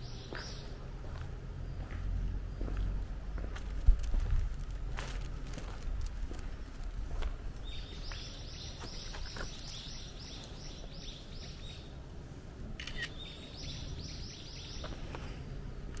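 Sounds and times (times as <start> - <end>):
bird chirping: 0.0 - 0.8, 7.6 - 11.9, 12.8 - 15.1
low outdoor rumble: 0.0 - 16.0.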